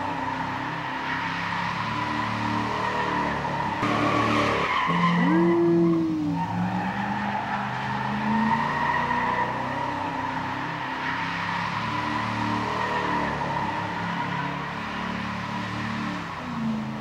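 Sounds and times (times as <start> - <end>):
car engine revving: 0.0 - 17.0
tyres squealing: 3.8 - 9.7.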